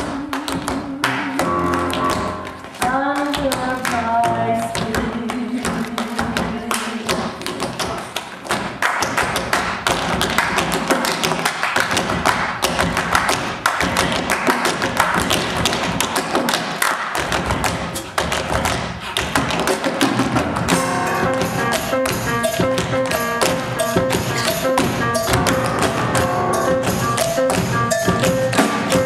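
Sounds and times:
tap shoes on wooden stage: 0.0s - 29.0s
live music: 1.1s - 2.9s, 19.6s - 29.0s
pitched melody: 1.4s - 2.8s, 20.7s - 29.0s.

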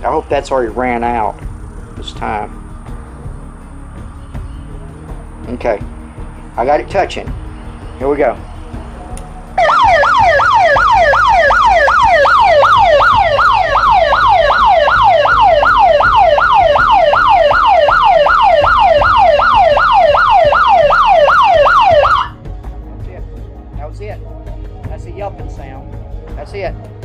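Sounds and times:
electronic siren yelp: 9.6s - 22.4s.

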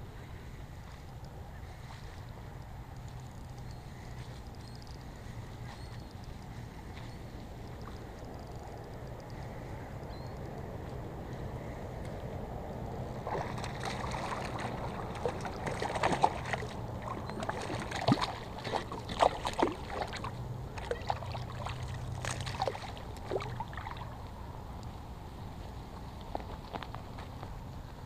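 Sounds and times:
fish splashing at water surface: 13.2s - 24.2s.

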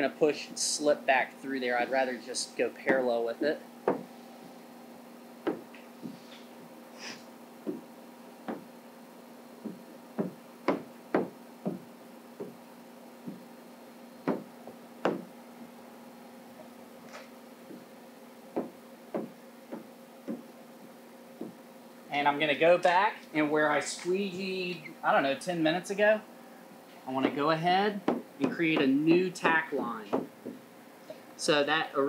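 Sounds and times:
faint steady hum: 0.0s - 32.0s
squeegee knocks and taps: 18.6s - 20.5s.

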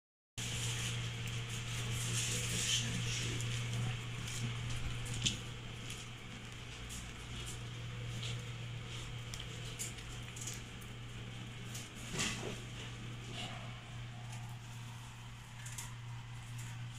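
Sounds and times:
steady low hum: 0.4s - 16.9s
puppy claws clicking on tile: 9.2s - 11.0s, 15.5s - 16.8s.

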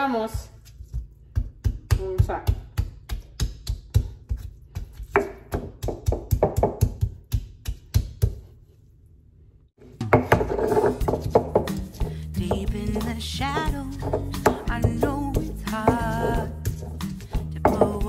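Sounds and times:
stone pestle knocking on stone: 1.3s - 8.4s, 10.0s - 18.0s
background music: 10.0s - 18.0s.

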